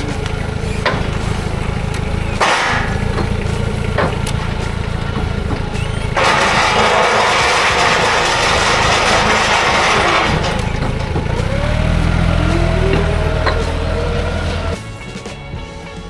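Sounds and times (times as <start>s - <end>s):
heavy machine engine running: 0.0s - 15.4s.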